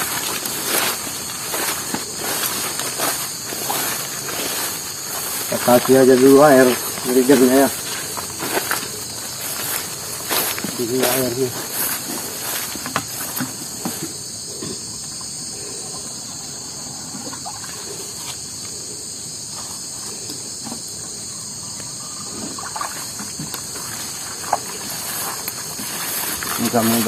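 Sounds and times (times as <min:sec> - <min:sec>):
footsteps through wet undergrowth: 0:00.0 - 0:14.4, 0:22.6 - 0:27.0
high-pitched insect chorus: 0:00.0 - 0:27.0.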